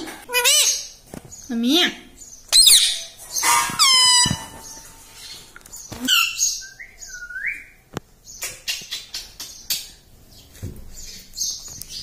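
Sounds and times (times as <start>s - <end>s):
parakeet calling: 2.5s - 5.4s.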